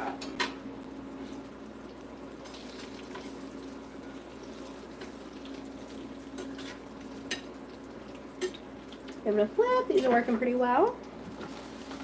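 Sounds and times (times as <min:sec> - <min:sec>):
oil bubbling and sizzling: 0:00.0 - 0:12.0
fork tapping in pan: 0:06.4 - 0:07.5.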